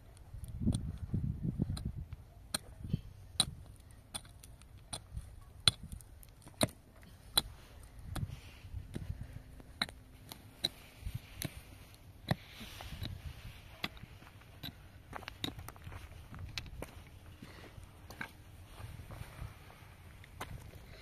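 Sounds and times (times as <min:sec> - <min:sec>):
sharp irregular clicks and knocks: 0:03.4 - 0:08.3, 0:08.9 - 0:11.6, 0:13.8 - 0:16.9.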